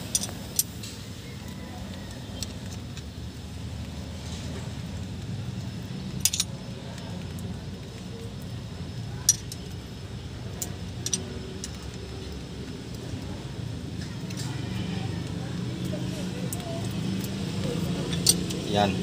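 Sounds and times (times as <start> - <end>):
steel tools clinking on metal: 0.0 - 0.9, 6.1 - 6.6, 10.6 - 12.0, 17.2 - 18.7.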